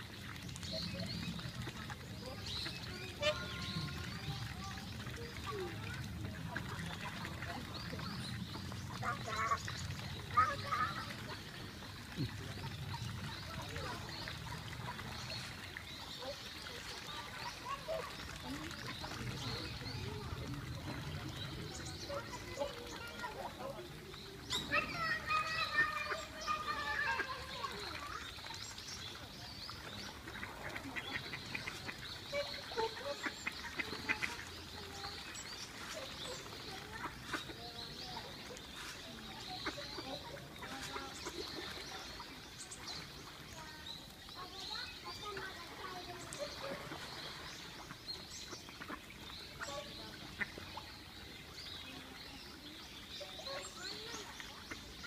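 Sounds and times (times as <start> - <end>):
ducks quacking: 30.1 - 35.0, 35.8 - 37.6, 45.3 - 50.9.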